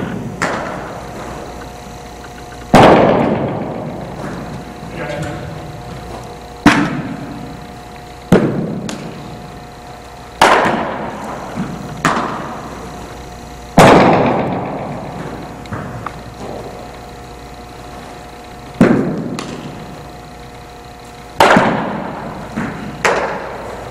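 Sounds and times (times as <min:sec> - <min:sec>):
baseball smacks echoing: 0:00.3 - 0:01.4, 0:02.7 - 0:04.6, 0:06.6 - 0:07.5, 0:08.3 - 0:09.2, 0:10.4 - 0:12.6, 0:18.8 - 0:19.8, 0:21.4 - 0:23.8.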